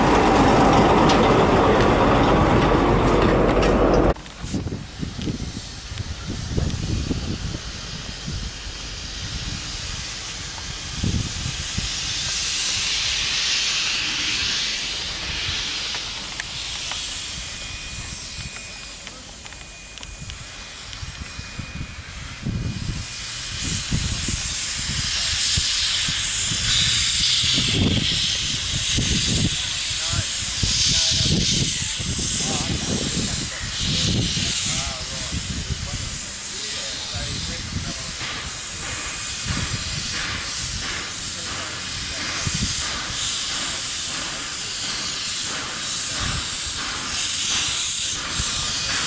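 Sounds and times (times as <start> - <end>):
low rumbling: 0.0 - 16.7
steam locomotive hissing: 0.0 - 49.0.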